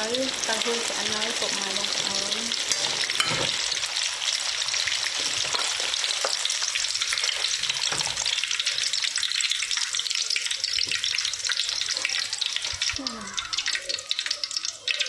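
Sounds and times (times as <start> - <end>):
hot oil crackling and sizzling: 0.0 - 15.0
metal ladle scraping wok: 2.5 - 3.8.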